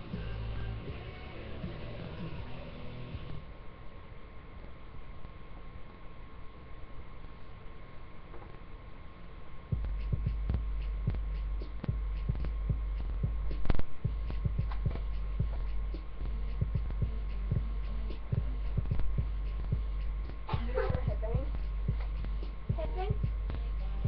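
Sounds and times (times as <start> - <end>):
low rumble: 9.7 - 24.0.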